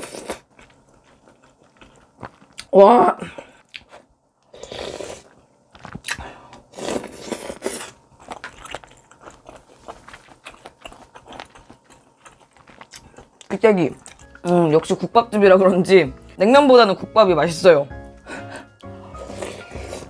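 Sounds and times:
chewing with smacks and clicks: 0.0 - 2.7, 5.2 - 15.0.

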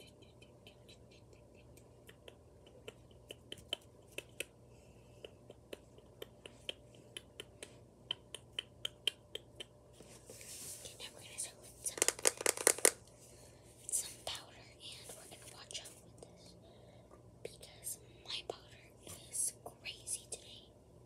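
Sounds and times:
fingertips tapping on phone: 11.9 - 13.0.

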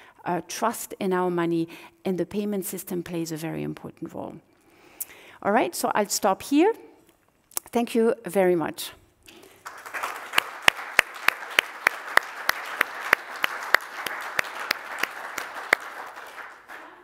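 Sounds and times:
close hands clapping loudly: 9.3 - 17.0
audience applauding: 9.4 - 17.0.

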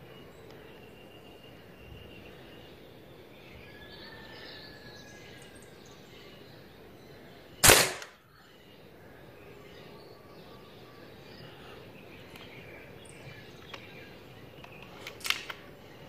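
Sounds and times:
air rifle shot: 7.6 - 8.2.

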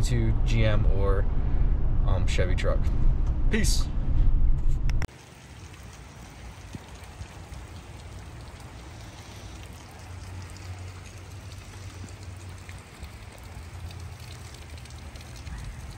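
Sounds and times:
low steady rumble: 0.0 - 15.9
light rain patter: 5.1 - 15.9.

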